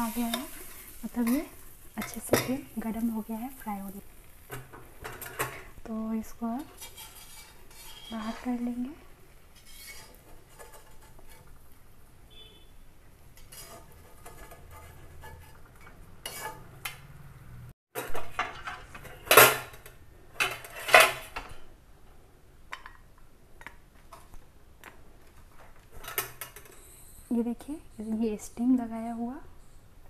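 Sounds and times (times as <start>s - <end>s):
metal utensils clanking on iron pan: 0.0s - 3.2s, 4.5s - 5.8s, 6.4s - 8.6s, 9.5s - 11.6s, 13.4s - 17.0s, 18.0s - 21.7s, 26.0s - 26.8s.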